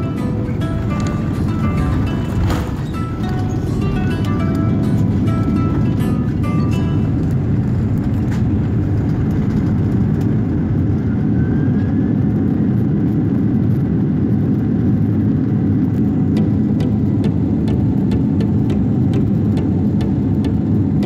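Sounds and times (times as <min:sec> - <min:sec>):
jet engines roaring: 0:00.0 - 0:21.0
plane rolling noise: 0:00.0 - 0:21.0.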